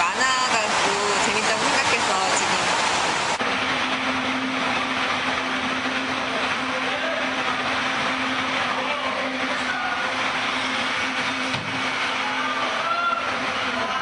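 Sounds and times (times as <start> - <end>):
mechanical hum with rushing noise: 0.0 - 14.0.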